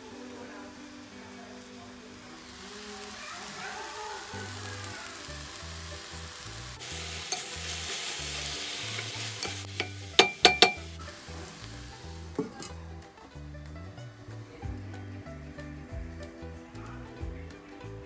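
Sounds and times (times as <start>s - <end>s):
eggplant sizzling in a pan: 0.0s - 16.1s
utensil clanking on metal pan: 7.2s - 7.7s, 8.9s - 10.9s, 12.3s - 12.8s.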